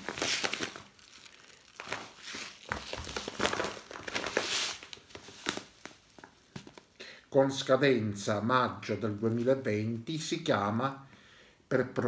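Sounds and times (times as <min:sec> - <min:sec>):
plastic sack crinkling and rustling: 0:00.0 - 0:07.0.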